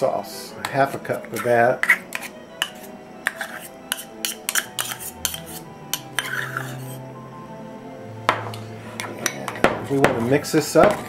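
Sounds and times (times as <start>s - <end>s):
soft background music: 0.0s - 11.0s
knife scraping metal cup: 0.6s - 7.0s.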